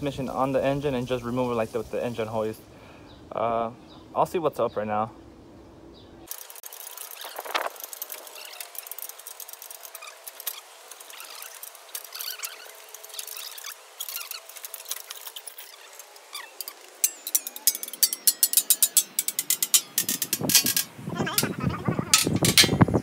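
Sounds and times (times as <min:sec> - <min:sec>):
chain clicks and rattles: 0:06.3 - 0:21.5, 0:22.1 - 0:23.0
metal scrape: 0:06.3 - 0:21.5, 0:22.1 - 0:23.0
thin squeaky tones: 0:06.8 - 0:22.7.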